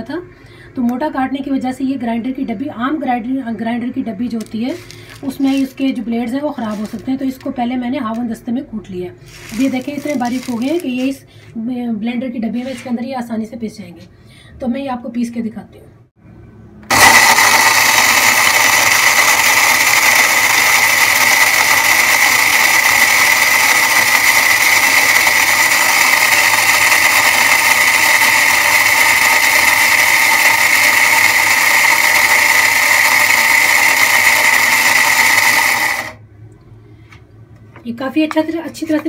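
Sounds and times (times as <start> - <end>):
mixer grinder whirring: 9.3 - 11.0, 16.8 - 36.2.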